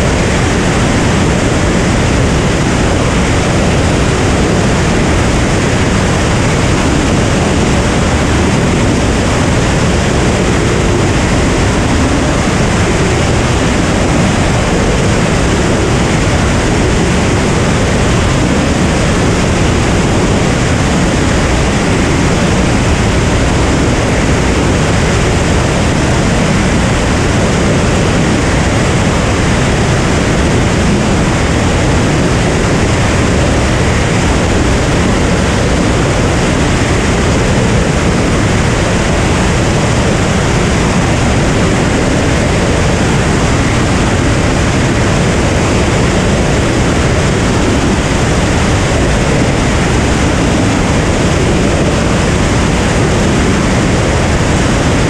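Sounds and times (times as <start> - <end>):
airplane propeller and engine: 0.0 - 55.0
wind rushing: 0.0 - 55.0.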